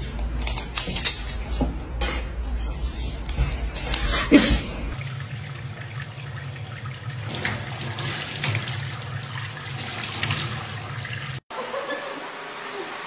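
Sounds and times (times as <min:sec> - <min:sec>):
tap water running into sink: 0:05.0 - 0:11.4.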